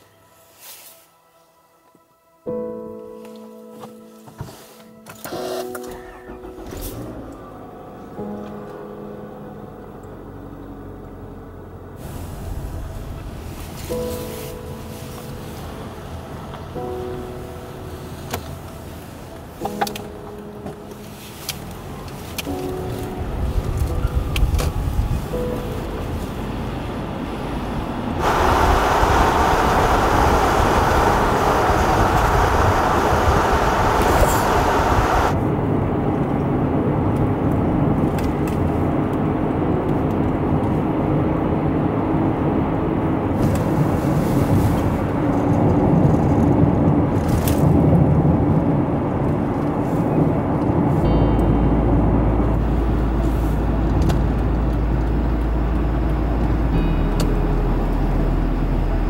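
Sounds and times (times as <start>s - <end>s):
tyre and road noise: 6.5s - 59.0s
hissy rush: 12.0s - 15.7s, 28.2s - 35.4s.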